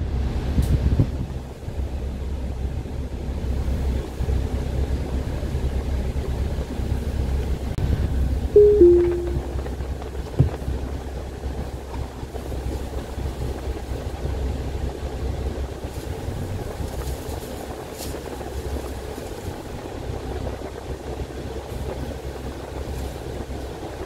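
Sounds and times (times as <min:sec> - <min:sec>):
diesel engine low rumble: 0:00.0 - 0:24.0.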